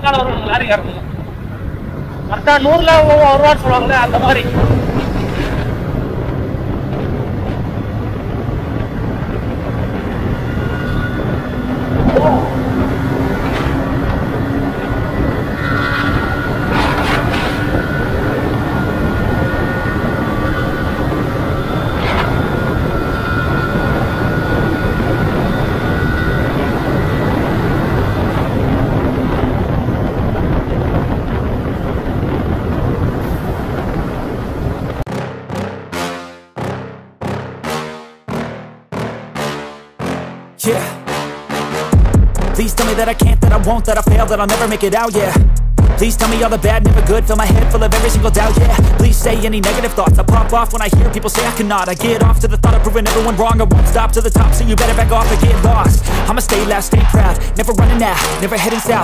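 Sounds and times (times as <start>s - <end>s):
road noise: 0.0s - 35.1s, 42.3s - 59.0s
wind noise: 0.0s - 35.1s, 42.0s - 59.0s
motorcycle engine cruising: 4.3s - 35.0s.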